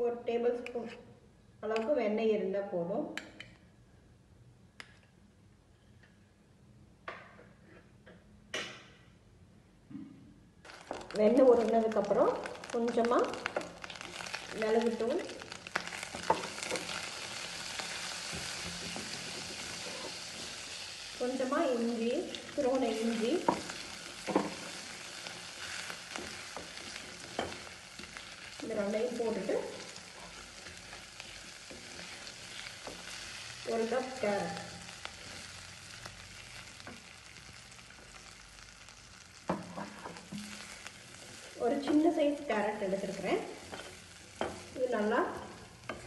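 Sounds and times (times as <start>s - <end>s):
butter sizzling in a pan: 10.7s - 46.0s
spatula scraping and tapping pan: 15.7s - 20.6s, 22.4s - 28.6s, 43.6s - 44.8s, 45.4s - 46.0s
wooden spatula tapping a pan: 23.4s - 24.6s.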